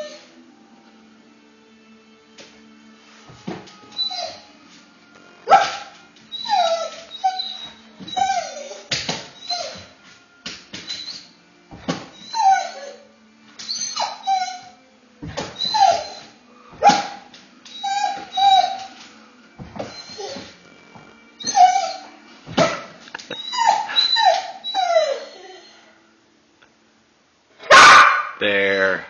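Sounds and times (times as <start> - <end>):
dog whining and yelping: 0.0 - 0.3, 3.9 - 4.5, 5.5 - 10.0, 10.8 - 11.3, 11.9 - 19.0, 19.8 - 20.6, 21.4 - 25.9.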